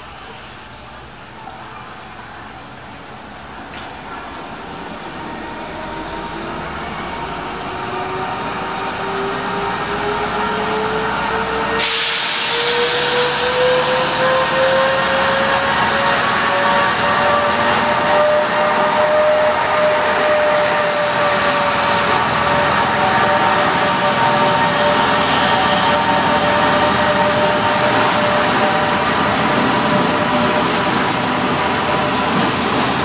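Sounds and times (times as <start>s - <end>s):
diesel locomotive engine: 0.0s - 33.0s
train running noise hiss: 0.0s - 33.0s.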